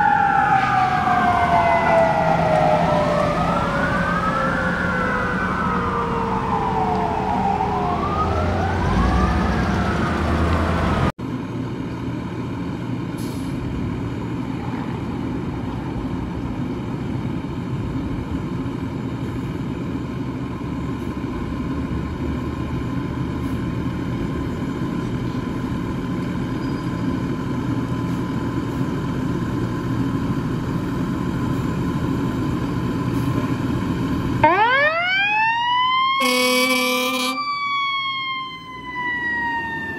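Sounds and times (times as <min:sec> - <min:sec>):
fire engine siren wailing: 0:00.0 - 0:11.1, 0:33.6 - 0:39.9.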